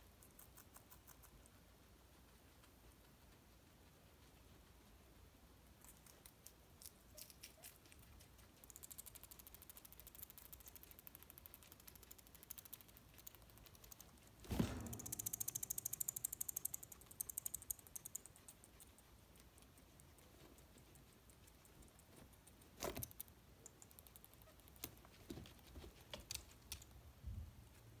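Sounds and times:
guinea pig teeth chattering: 0:00.0 - 0:14.4, 0:15.0 - 0:25.7
guinea pig bumping plastic hideout: 0:14.2 - 0:18.0.

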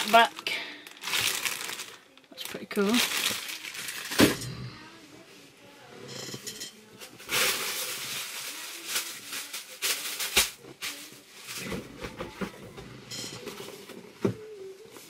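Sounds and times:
plastic packaging rustling: 0:00.0 - 0:04.4, 0:07.0 - 0:12.6.

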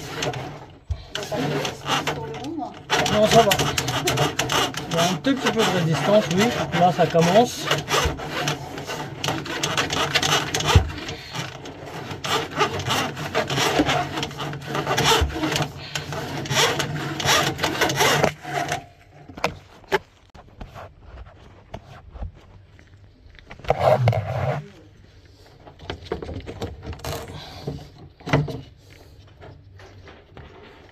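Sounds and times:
drain snake scraping in a pipe: 0:00.0 - 0:18.8.

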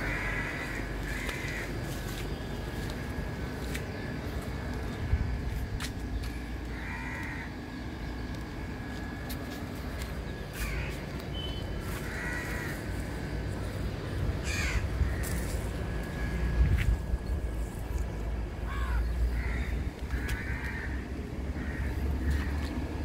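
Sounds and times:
crow cawing: 0:00.0 - 0:01.9, 0:06.4 - 0:07.7, 0:10.6 - 0:11.0, 0:11.9 - 0:13.3, 0:14.4 - 0:15.5, 0:18.6 - 0:22.9
falling bird calls: 0:00.0 - 0:02.8, 0:09.8 - 0:17.5.

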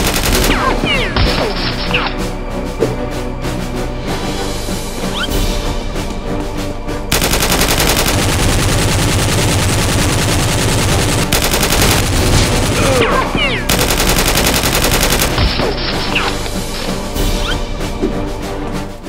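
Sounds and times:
rapid automatic gunfire: 0:00.0 - 0:00.8, 0:07.1 - 0:15.7.

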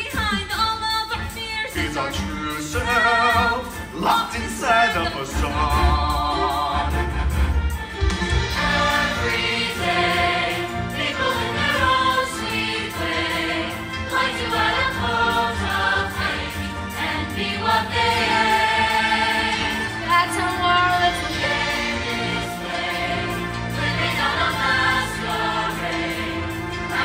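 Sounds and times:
accompaniment music: 0:00.0 - 0:27.0
cast singing together: 0:08.5 - 0:27.0.

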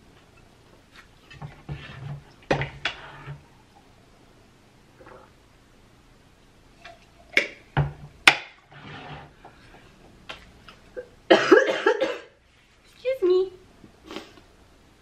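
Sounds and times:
woman coughing: 0:11.3 - 0:12.4.

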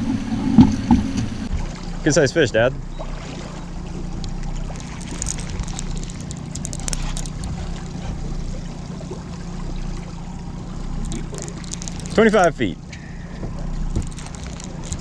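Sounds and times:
outboard motor humming: 0:00.0 - 0:15.0
water washing past hull: 0:00.0 - 0:15.0
light high ticks: 0:04.2 - 0:08.1.

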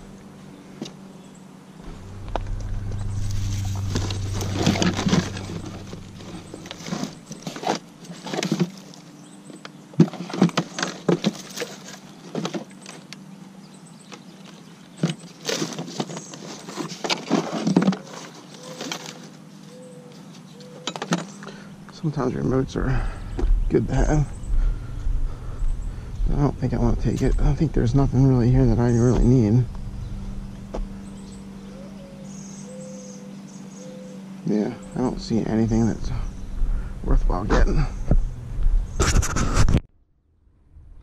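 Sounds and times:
low rumble: 0:01.8 - 0:07.5, 0:21.8 - 0:31.8, 0:35.1 - 0:39.3, 0:39.9 - 0:41.0
items clicking and knocking: 0:09.6 - 0:13.2, 0:20.8 - 0:21.4.

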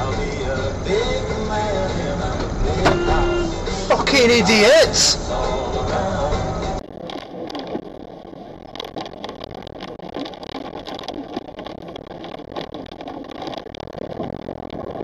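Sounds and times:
vehicle engine and tyre noise: 0:00.0 - 0:15.0
small irregular ticks: 0:06.8 - 0:15.0.

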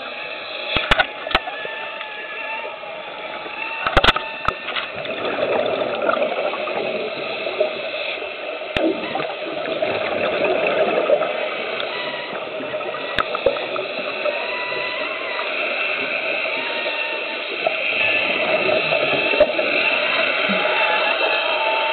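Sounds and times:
air bubbles rushing underwater: 0:04.9 - 0:07.9, 0:08.7 - 0:14.4, 0:17.5 - 0:21.3.

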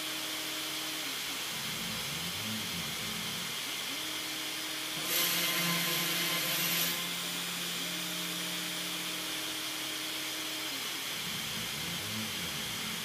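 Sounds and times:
stepper motor whine: 0:02.6 - 0:13.0
router spindle drilling: 0:03.5 - 0:11.2.

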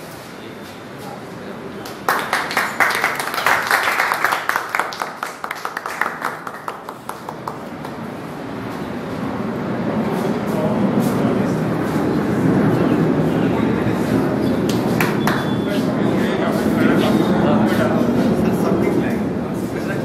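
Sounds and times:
people clapping: 0:01.8 - 0:08.4, 0:14.6 - 0:15.9
crowd talking: 0:09.2 - 0:20.0.

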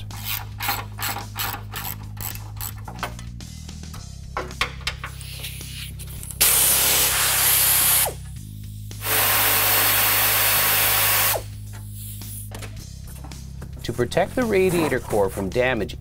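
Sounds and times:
pneumatic air ratchet: 0:00.0 - 0:02.8, 0:05.1 - 0:08.3, 0:09.0 - 0:12.5.

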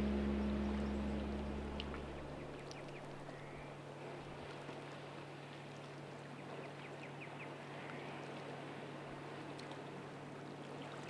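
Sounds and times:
river rushing: 0:00.0 - 0:03.4
steady low hum: 0:00.0 - 0:03.4.

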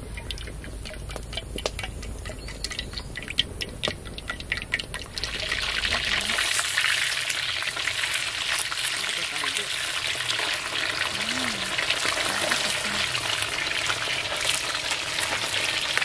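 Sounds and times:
oil crackling: 0:00.0 - 0:16.0
oil pouring into wok: 0:03.8 - 0:16.0
fish sizzling in oil: 0:04.2 - 0:16.0.

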